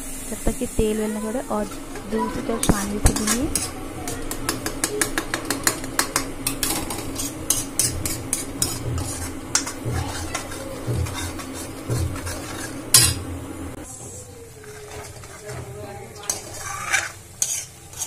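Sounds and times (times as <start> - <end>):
paste frying in oil: 0.0 - 13.7, 14.5 - 18.0
spoon scraping metal pan: 2.2 - 13.2, 14.6 - 18.0.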